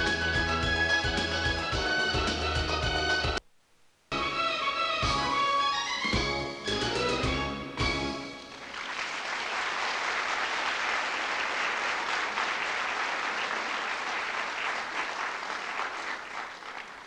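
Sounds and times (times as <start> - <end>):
audience applauding: 8.4 - 17.0.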